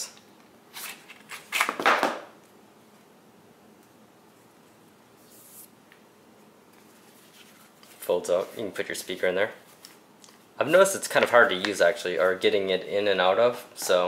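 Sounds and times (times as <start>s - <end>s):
soft handling rustle: 6.7s - 10.5s.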